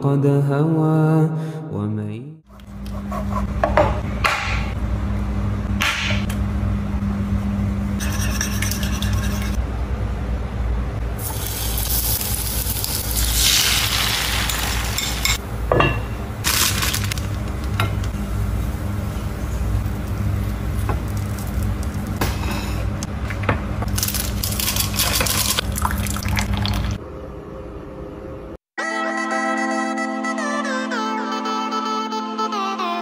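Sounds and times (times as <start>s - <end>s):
steady low hum: 2.5s - 28.6s
utensil beating eggs in bowl: 8.0s - 9.6s
loud sizzling in pan: 11.2s - 15.4s
utensils clinking on dishes: 14.3s - 16.2s.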